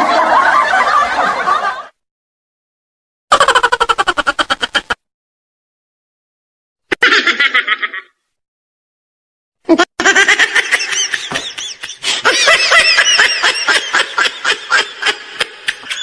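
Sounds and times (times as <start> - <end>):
high-pitched laughter: 3.3 - 5.0, 6.9 - 8.2, 9.7 - 16.0.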